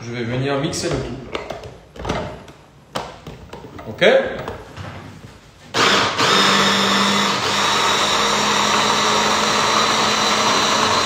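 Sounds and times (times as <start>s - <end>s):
hand blender motor humming: 5.8s - 11.0s.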